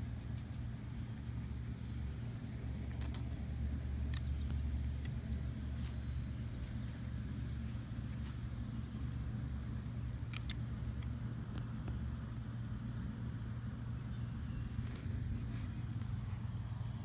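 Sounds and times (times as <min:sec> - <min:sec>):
steady low hum: 0:00.0 - 0:17.0
faint clicks: 0:09.0 - 0:17.0.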